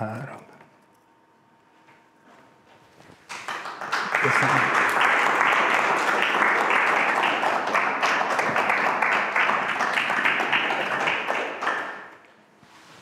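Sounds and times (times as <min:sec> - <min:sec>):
audience applauding: 0:03.3 - 0:12.2.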